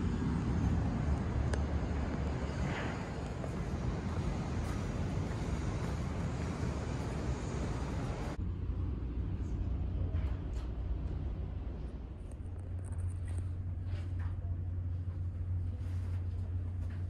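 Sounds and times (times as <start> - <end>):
wind noise: 0.0 - 8.4
distant city traffic: 0.0 - 17.0
low indoor rumble: 0.0 - 17.0.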